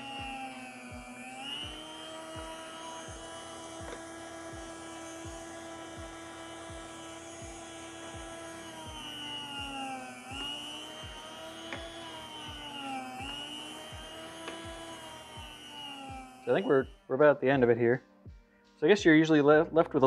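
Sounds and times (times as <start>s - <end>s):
electric food slicer whine: 0.0s - 17.6s.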